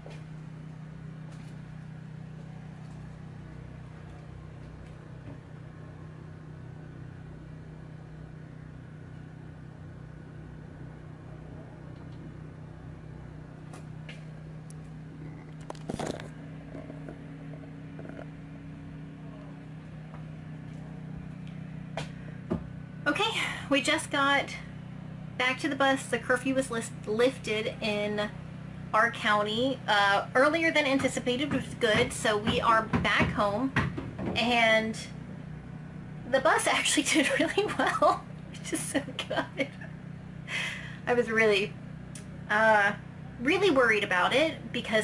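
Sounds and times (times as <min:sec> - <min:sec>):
low mechanical hum: 0:00.0 - 0:45.0.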